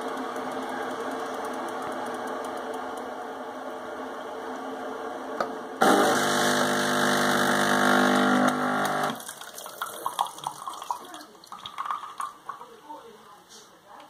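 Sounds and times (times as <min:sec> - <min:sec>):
coffee machine rattling hum: 0:00.0 - 0:03.0
coffee machine pump buzzing: 0:05.8 - 0:09.2
coffee spurting and dripping: 0:08.4 - 0:12.8.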